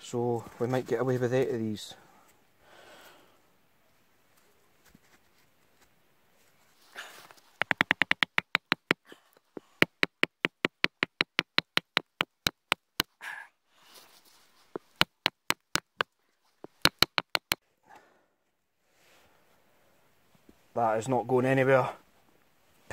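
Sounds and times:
wooden mallet knocking wooden peg: 0:07.6 - 0:09.0, 0:09.7 - 0:13.1, 0:14.8 - 0:17.6.

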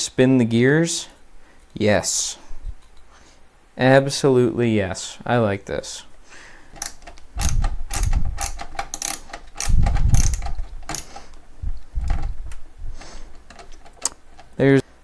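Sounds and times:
screwdriver ratchet clicks: 0:06.8 - 0:11.2.

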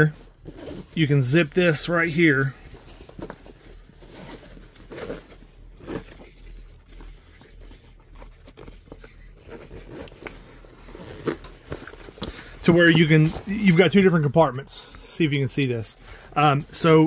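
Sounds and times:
zipper pulls: 0:04.3 - 0:12.0.

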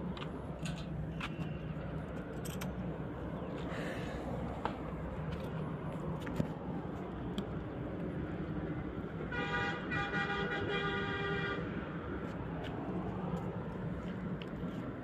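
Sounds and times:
vehicle horn honking: 0:09.3 - 0:11.7.

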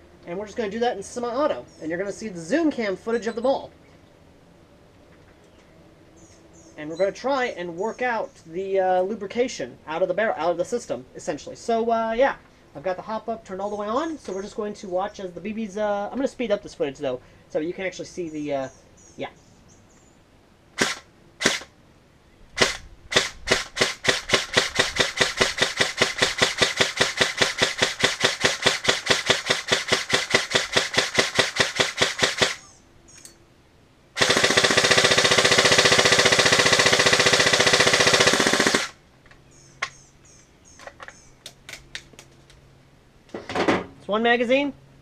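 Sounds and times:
airsoft rifle shots: 0:20.8 - 0:21.7, 0:22.6 - 0:32.6, 0:34.2 - 0:39.0.

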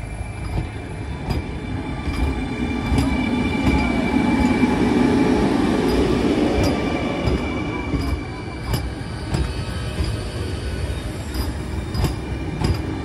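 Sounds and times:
train wheels clicking over rail joints: 0:00.0 - 0:13.0.

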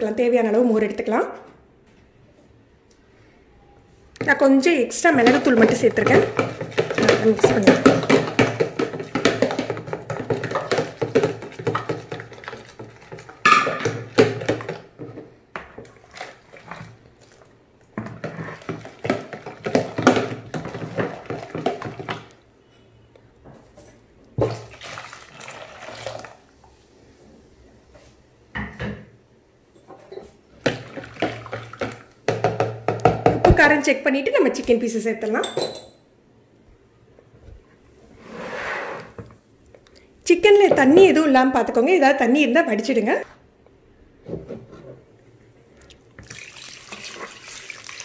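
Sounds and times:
spoon scraping plastic tub: 0:05.1 - 0:22.3
liquid sloshing: 0:05.2 - 0:15.0, 0:15.8 - 0:22.4, 0:24.4 - 0:26.5, 0:30.6 - 0:32.2, 0:45.8 - 0:48.0.

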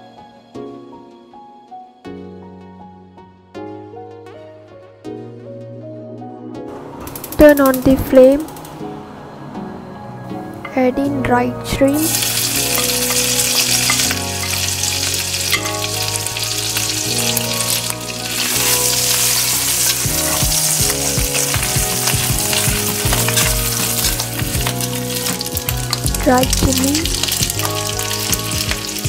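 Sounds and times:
shrimp sizzling in hot oil: 0:12.0 - 0:29.0
metal spatula scraping wok: 0:12.1 - 0:26.0.

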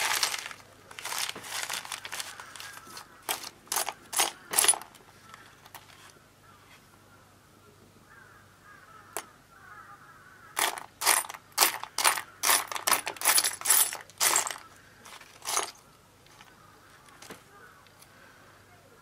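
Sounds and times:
small metal parts clinking: 0:00.0 - 0:06.0, 0:10.6 - 0:18.0.

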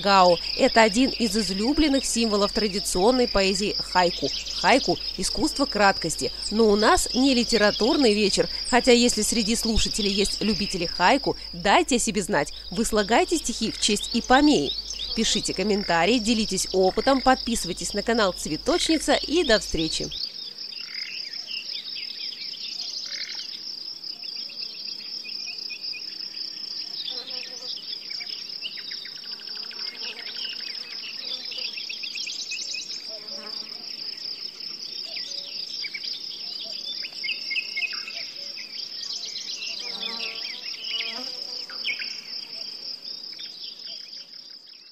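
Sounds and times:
small birds chirping: 0:00.0 - 0:23.6, 0:26.9 - 0:33.3, 0:34.8 - 0:44.9
cricket trill: 0:00.0 - 0:44.9.

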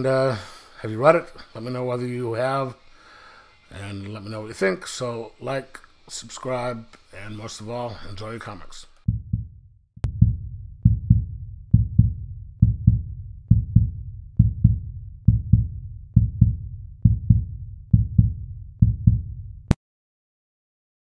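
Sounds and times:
deep heartbeat-like double thump: 0:09.1 - 0:19.7.

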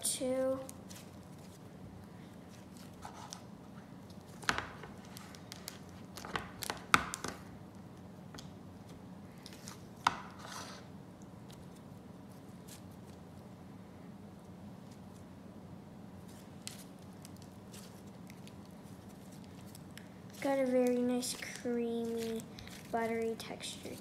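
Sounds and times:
faint steady hum: 0:00.0 - 0:24.0
slime crackling: 0:16.3 - 0:24.0.

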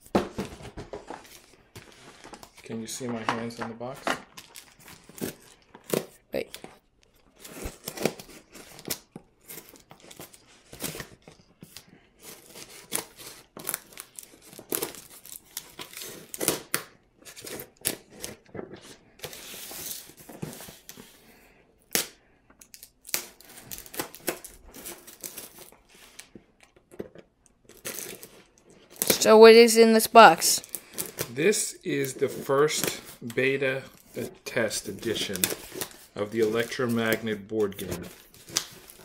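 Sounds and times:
packing tape tearing: 0:07.3 - 0:18.4, 0:21.9 - 0:25.8, 0:27.7 - 0:29.3, 0:30.6 - 0:34.3, 0:35.0 - 0:39.0
cardboard scratching and crinkling: 0:31.0 - 0:39.0.

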